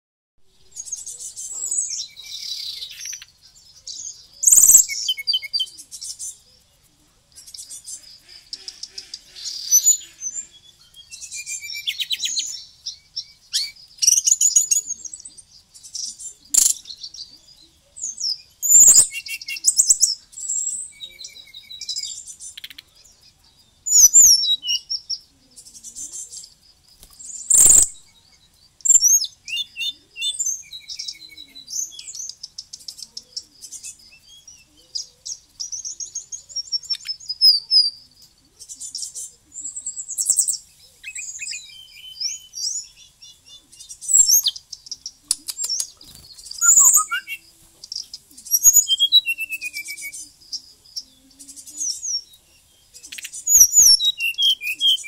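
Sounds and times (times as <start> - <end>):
bird singing: 0.4 - 55.0
sharp clicks: 45.3 - 46.6.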